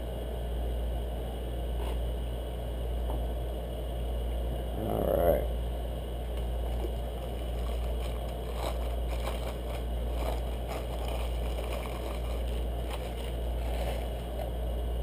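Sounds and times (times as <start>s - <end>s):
steady low hum: 0.0s - 15.0s
plastic wrapping crinkling: 6.6s - 14.5s.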